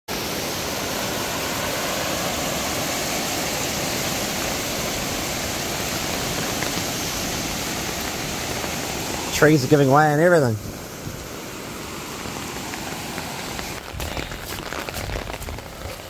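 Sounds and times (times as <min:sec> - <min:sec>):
floodwater rushing: 0:00.1 - 0:16.0.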